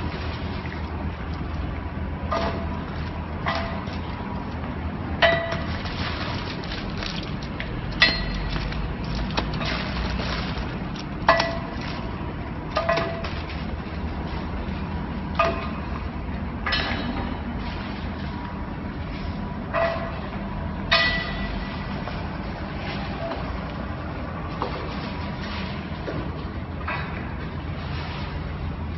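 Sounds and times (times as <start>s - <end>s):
packing machine humming: 0.0s - 20.8s.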